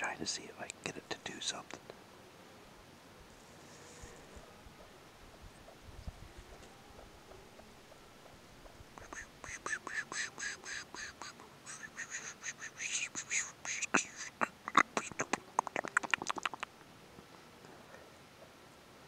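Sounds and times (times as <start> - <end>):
grouse alarm calls: 9.0 - 16.8.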